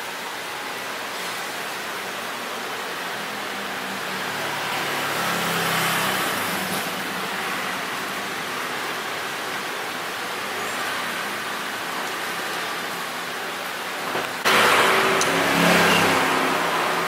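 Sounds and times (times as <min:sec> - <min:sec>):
traffic noise hiss: 0:00.0 - 0:17.0
vehicle passing: 0:03.8 - 0:08.2, 0:14.4 - 0:17.0.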